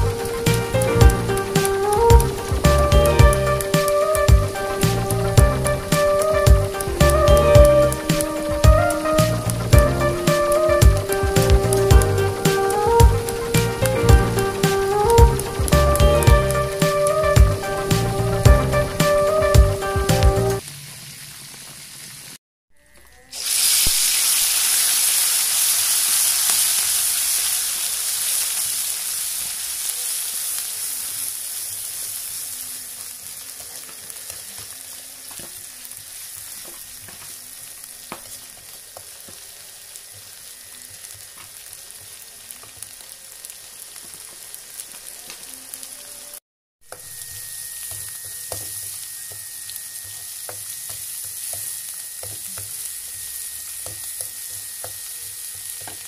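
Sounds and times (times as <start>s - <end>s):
paste sizzling in hot oil: 0.0s - 22.4s, 23.2s - 56.0s.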